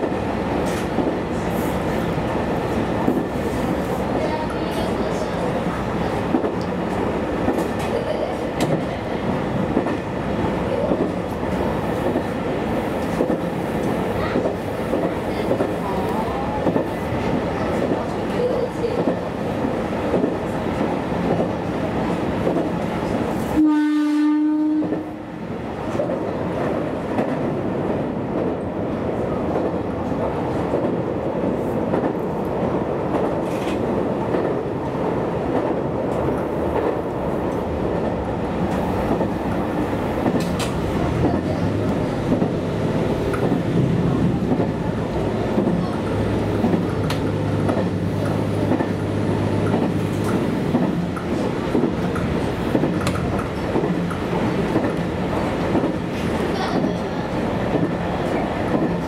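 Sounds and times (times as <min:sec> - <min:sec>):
railcar running: 0:00.0 - 0:59.0
train horn blast: 0:23.5 - 0:25.2
train wheels clicking over rail joints: 0:45.5 - 0:59.0.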